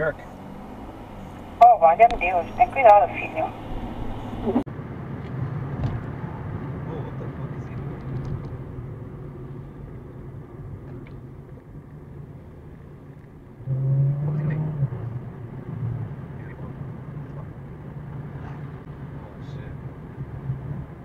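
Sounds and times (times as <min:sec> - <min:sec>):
low steady drone: 0:00.0 - 0:04.7
car road and engine noise: 0:00.0 - 0:21.0.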